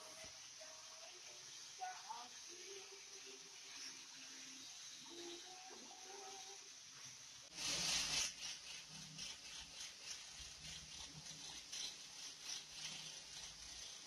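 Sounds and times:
angle grinder grinding steel: 7.5s - 14.0s.

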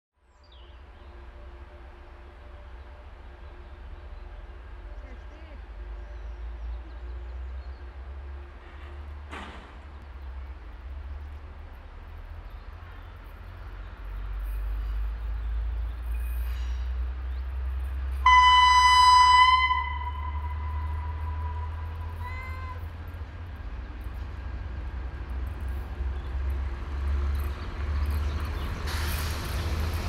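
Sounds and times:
diesel railcar engine rumble: 0.2s - 30.0s
train horn: 18.2s - 22.8s.

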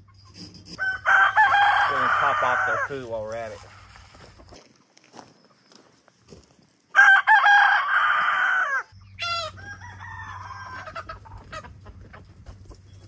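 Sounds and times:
rooster crowing: 0.7s - 3.1s, 6.9s - 11.6s
chicken squawking and clucking: 7.0s - 12.7s.

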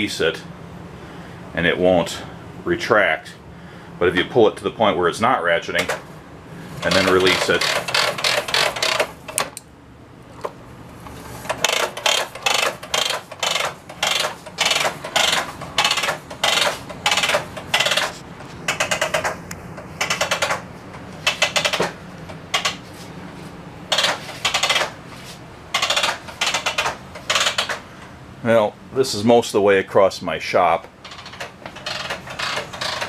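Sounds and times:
hose reel ratchet clicking: 6.8s - 9.6s, 11.5s - 19.4s, 21.2s - 22.8s, 23.9s - 24.9s, 25.7s - 27.8s, 31.0s - 33.0s.

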